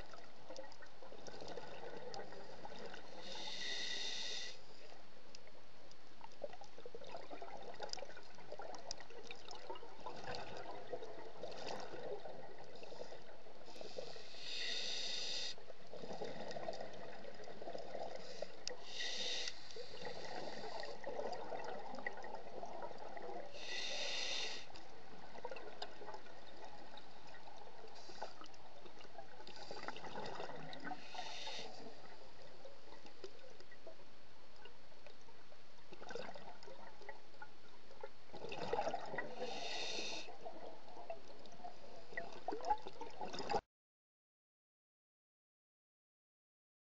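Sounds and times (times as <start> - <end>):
exhaled bubbles rumbling: 0.0 - 3.2, 15.9 - 18.3, 19.9 - 23.5, 28.6 - 31.0, 38.3 - 39.5
regulator hissing inhalation: 3.2 - 4.6, 13.8 - 15.6, 18.3 - 20.9, 23.6 - 24.7, 31.0 - 31.8, 39.4 - 40.3.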